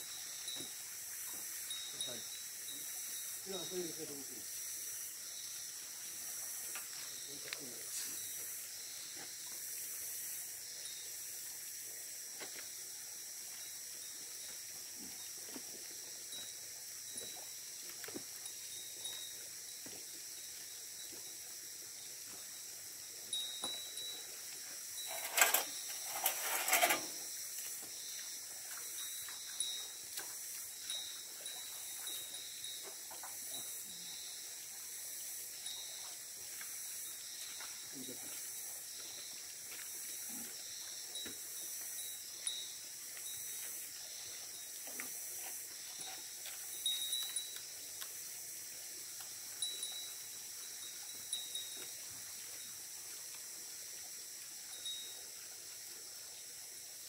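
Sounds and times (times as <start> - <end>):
steady high hiss: 0.0 - 57.0
metal scraping clatter: 25.1 - 27.2.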